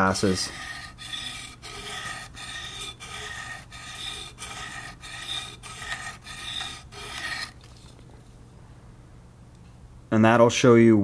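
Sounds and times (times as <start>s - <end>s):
blade scraping ceramic rod: 0.0s - 7.7s.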